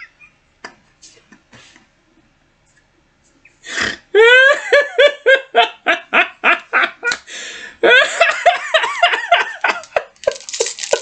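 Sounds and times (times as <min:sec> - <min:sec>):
man laughing hard: 0:04.1 - 0:07.2, 0:07.8 - 0:11.0.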